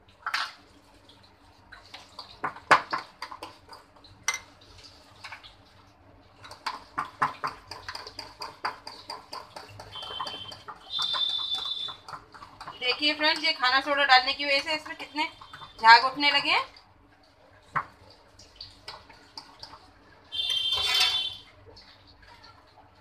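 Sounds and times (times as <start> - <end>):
spoon scraping glass bowl: 9.9 - 12.0, 20.4 - 21.4.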